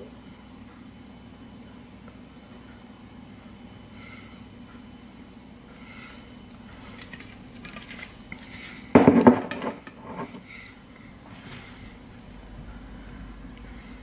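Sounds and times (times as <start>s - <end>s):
glass bottle set down on counter: 9.0s - 9.8s.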